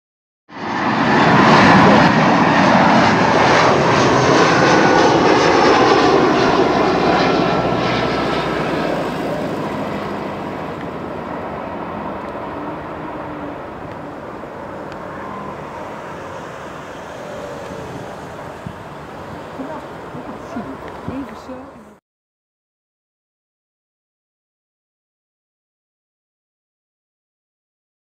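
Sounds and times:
jet engines passing low: 0.5 - 22.0.

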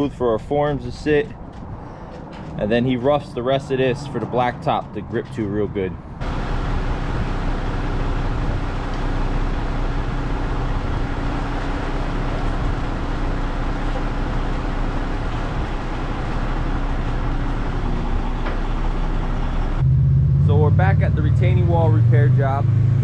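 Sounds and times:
diesel engine rumble: 0.0 - 23.0
steady hum: 6.2 - 23.0.

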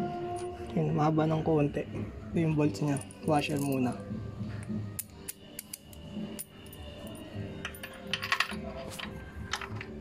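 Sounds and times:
metal bolt and washer clinking: 5.0 - 10.0.

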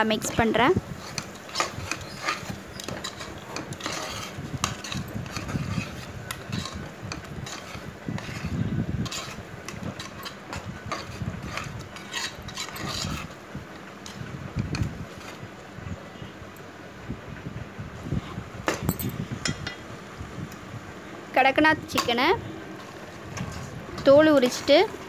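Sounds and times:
metal ladle scraping pot: 1.0 - 13.4, 21.9 - 24.8.

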